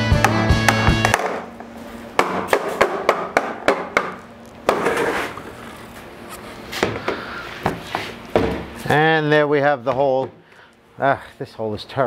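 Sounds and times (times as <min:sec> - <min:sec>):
rubber mallet knocking vinyl post: 0:00.2 - 0:01.4.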